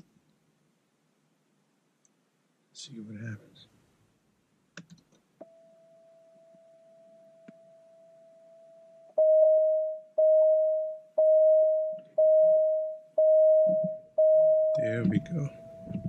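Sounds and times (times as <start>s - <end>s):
faint steady tone: 5.4s - 16.0s
car warning chime: 9.2s - 16.0s.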